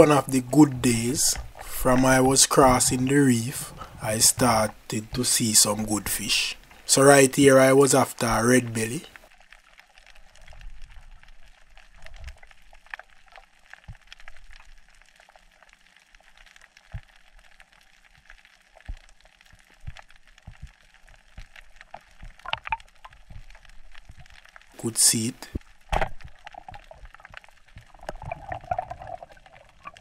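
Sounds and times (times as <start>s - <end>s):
crackle of tiny clicks: 8.9s - 24.8s, 25.4s - 30.0s.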